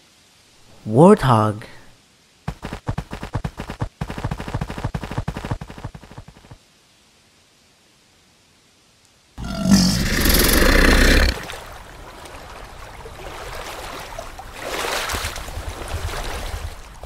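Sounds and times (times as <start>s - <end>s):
water flowing: 9.4s - 17.0s
water splashing: 9.5s - 17.0s.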